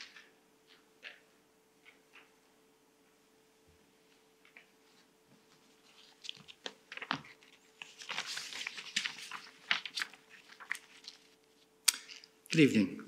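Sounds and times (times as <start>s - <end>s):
faint steady hum: 0.0s - 13.0s
paper rustling and crinkling: 4.4s - 12.3s.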